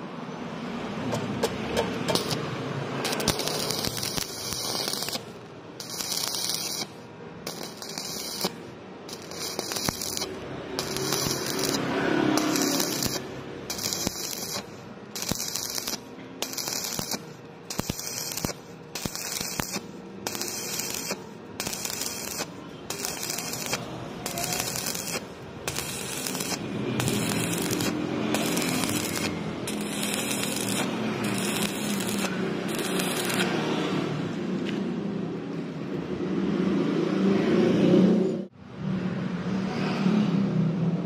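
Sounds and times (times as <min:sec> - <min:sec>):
welding arc crackling: 0:01.7 - 0:33.8.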